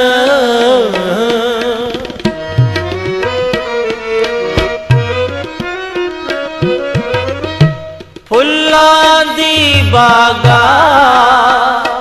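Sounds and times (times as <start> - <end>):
tabla playing: 0.0 - 12.0.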